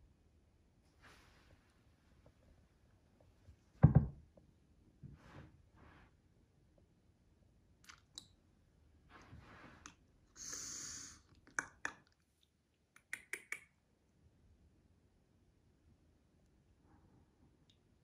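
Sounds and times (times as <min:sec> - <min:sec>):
rustling in a plush bed: 0:00.9 - 0:02.6.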